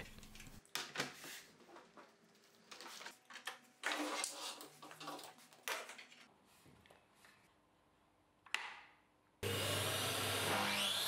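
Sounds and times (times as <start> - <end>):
knocks and clatters of tool handling: 2.8 - 6.3.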